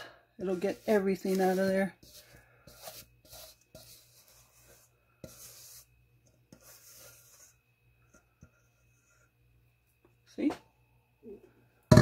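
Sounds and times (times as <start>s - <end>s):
spatula scraping metal bowl: 0.4s - 9.3s.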